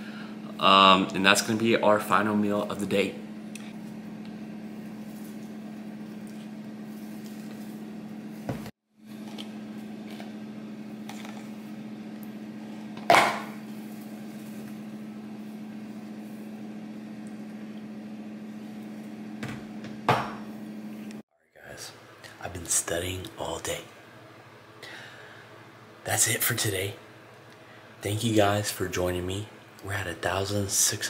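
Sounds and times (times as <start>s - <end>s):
kitchen appliance humming: 0.0s - 21.2s.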